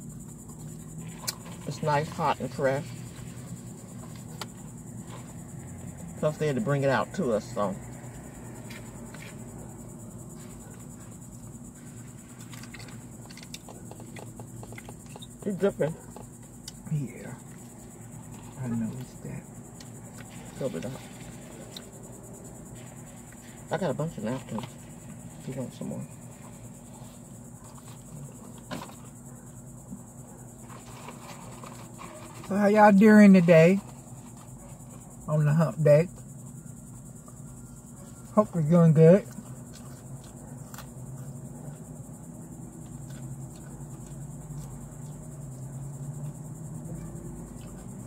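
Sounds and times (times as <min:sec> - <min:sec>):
insects buzzing: 0:00.0 - 0:48.0
faint clicks and rustles: 0:07.9 - 0:32.5.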